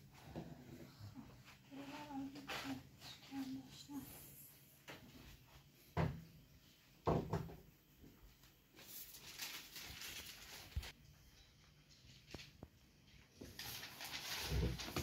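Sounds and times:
rustling: 0:08.7 - 0:11.0, 0:11.8 - 0:15.0.

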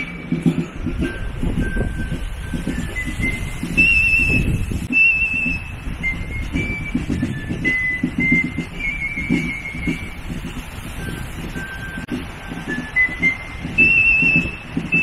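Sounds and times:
fife playing march tune: 0:00.0 - 0:15.0
side drum beating: 0:00.0 - 0:15.0.

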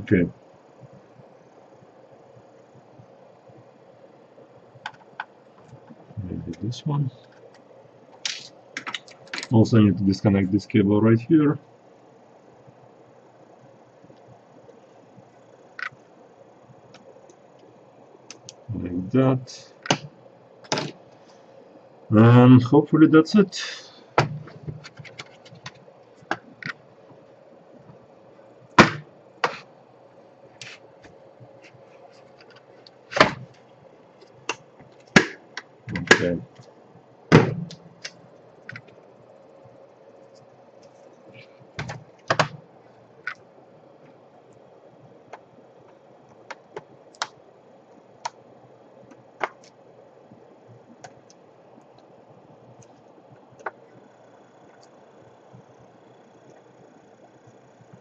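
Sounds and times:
laptop being handled: 0:08.2 - 0:09.6, 0:24.2 - 0:26.8, 0:28.8 - 0:29.7, 0:30.6 - 0:36.7, 0:40.3 - 0:42.6.

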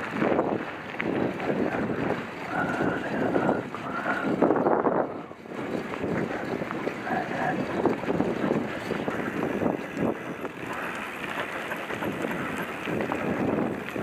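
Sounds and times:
bike tyres on dirt trail: 0:00.0 - 0:14.0
wind buffeting microphone: 0:00.0 - 0:14.0
bike knocks and rattles: 0:04.3 - 0:14.0.

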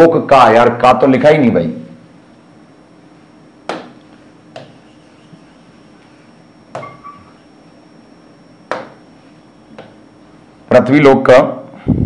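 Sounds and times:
stylus squeak: 0:04.6 - 0:07.5
stylus tapping on glass: 0:06.7 - 0:07.2, 0:08.7 - 0:09.0.

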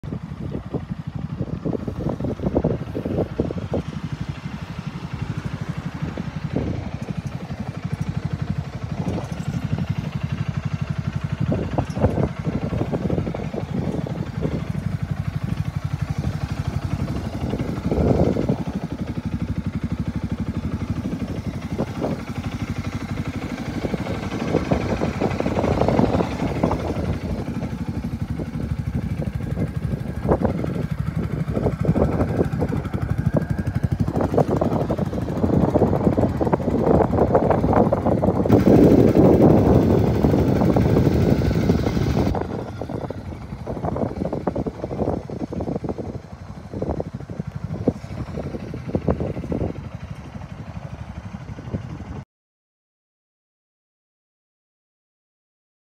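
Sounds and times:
atv engine idling: 0:00.1 - 0:52.2.

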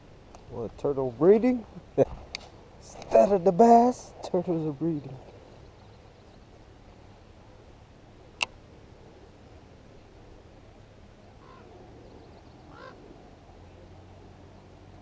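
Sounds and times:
low steady hum: 0:00.0 - 0:15.0
faint short bird calls: 0:11.3 - 0:13.8.

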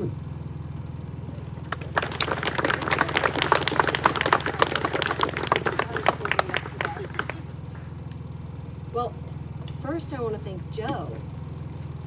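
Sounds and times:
small audience applauding: 0:01.6 - 0:07.8.

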